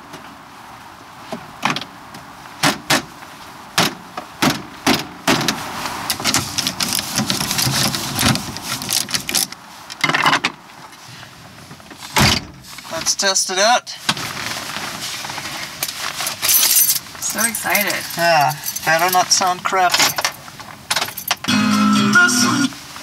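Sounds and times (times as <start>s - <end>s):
scraping and clattering: 6.1s - 10.5s.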